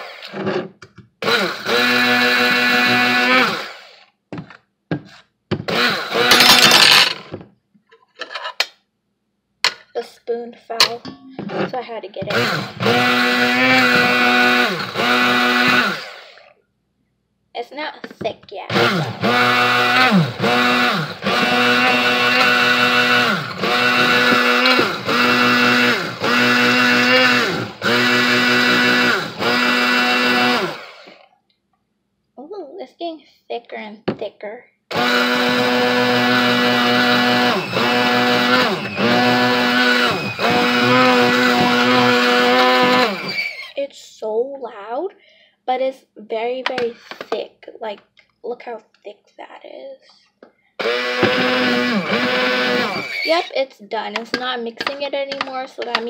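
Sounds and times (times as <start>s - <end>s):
immersion blender motor whine: 0.0s - 4.1s, 5.7s - 7.0s, 12.3s - 16.6s, 18.7s - 31.3s, 34.9s - 43.8s, 50.8s - 53.5s.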